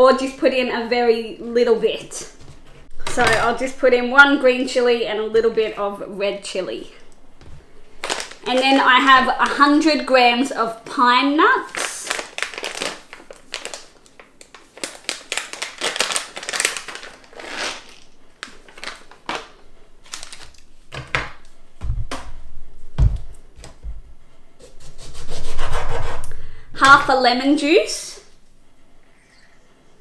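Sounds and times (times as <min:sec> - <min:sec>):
plastic packet crinkling: 0:07.9 - 0:09.6, 0:11.6 - 0:20.7.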